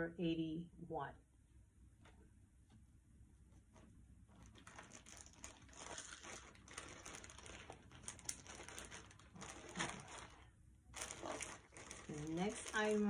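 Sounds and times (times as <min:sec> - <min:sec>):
jewelry crinkling and rustling: 0:03.7 - 0:13.0.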